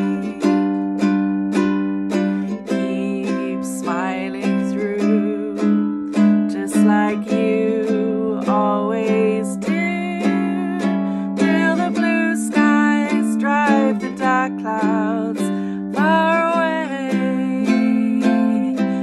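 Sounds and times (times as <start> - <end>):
ukulele strumming: 0.0 - 19.0
woman singing: 0.0 - 19.0.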